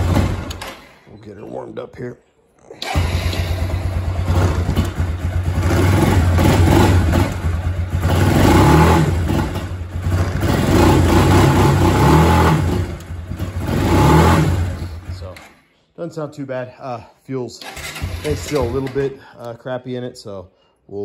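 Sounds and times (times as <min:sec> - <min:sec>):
atv engine revving: 0:00.0 - 0:00.8, 0:02.8 - 0:15.4, 0:17.6 - 0:19.0.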